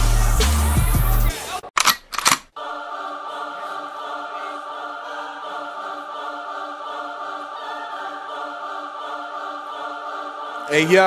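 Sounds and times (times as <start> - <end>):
choir-like sustained chord: 2.6 - 11.0.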